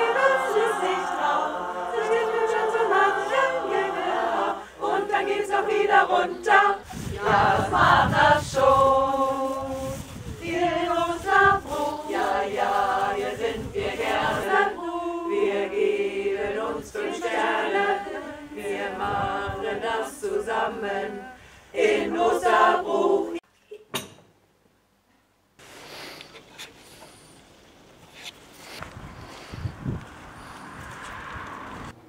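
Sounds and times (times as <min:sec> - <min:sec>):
women's choir singing: 0:00.0 - 0:23.4.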